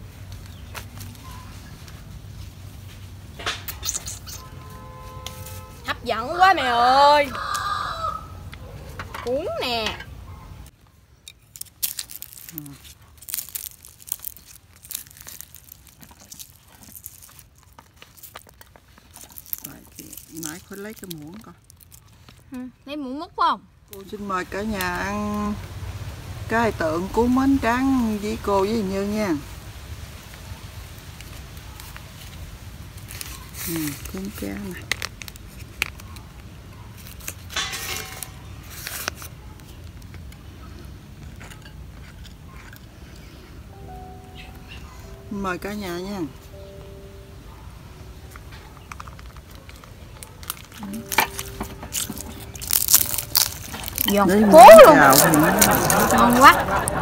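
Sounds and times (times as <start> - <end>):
rice paper rustling: 0.0 - 3.3, 11.4 - 22.6, 26.5 - 42.6, 48.3 - 57.0
crackles and crunches of fried fish: 10.7 - 22.6, 29.9 - 43.7, 48.2 - 57.0.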